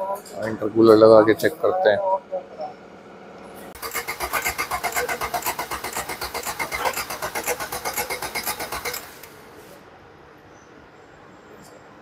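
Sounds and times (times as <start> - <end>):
starter motor cranking engine: 3.7 - 9.4.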